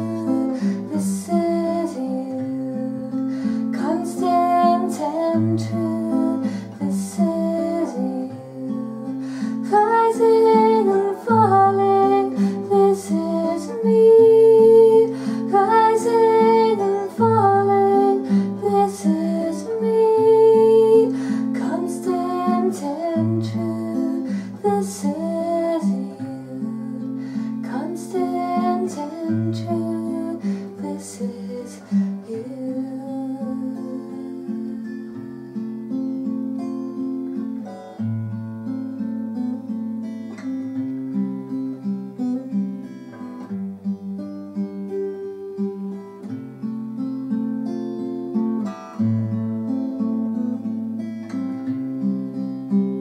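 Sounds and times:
woman singing: 0.0s - 35.6s
acoustic guitar strumming chords: 0.0s - 53.0s.

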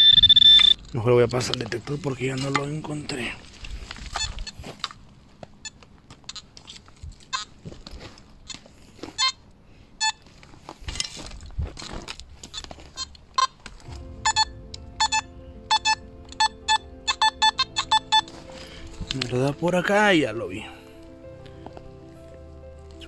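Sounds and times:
metal detector beeps: 0.0s - 0.9s, 10.0s - 10.2s, 14.2s - 18.3s.

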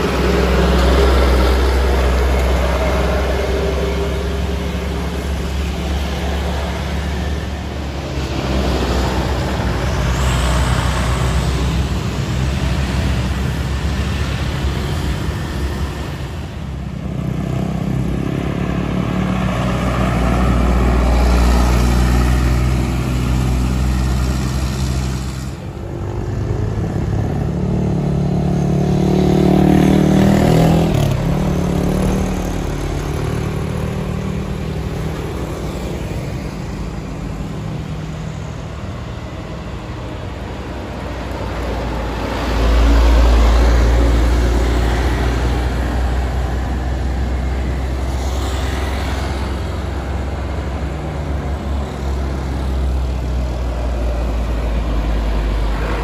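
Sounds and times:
traffic passing close by: 0.0s - 56.0s.

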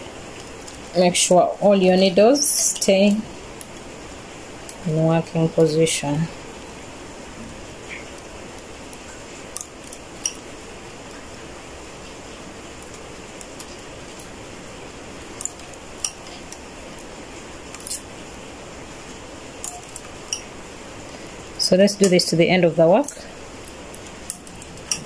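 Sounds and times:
steady background hiss: 0.0s - 25.0s
metal tool clicking on needles: 15.4s - 16.4s.

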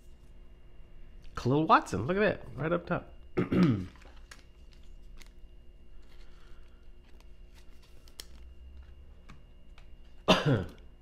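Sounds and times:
plastic sleeve rustling: 3.9s - 10.2s.

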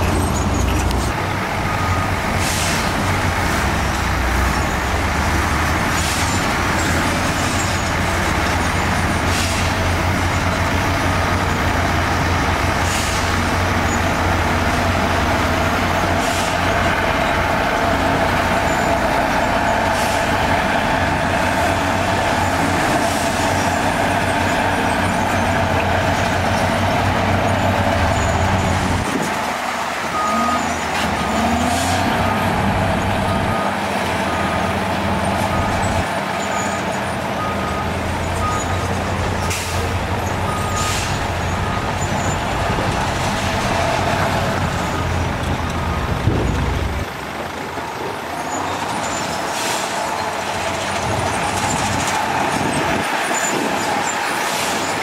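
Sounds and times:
bulldozer working: 0.0s - 55.0s
dump truck diesel engines running: 0.0s - 55.0s.

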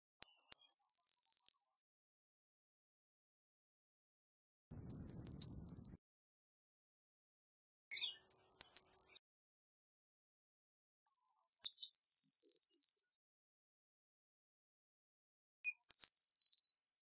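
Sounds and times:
bird singing high trill: 4.8s - 6.0s.

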